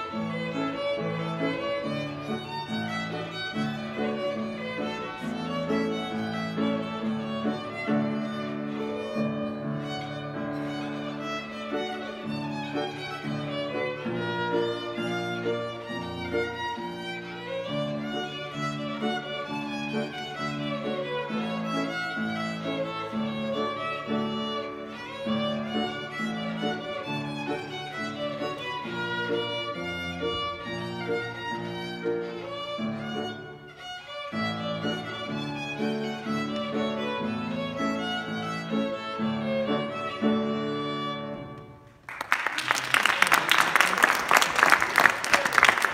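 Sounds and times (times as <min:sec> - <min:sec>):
solo violin playing a reel: 0:00.0 - 0:41.9
audience applause: 0:42.0 - 0:45.9.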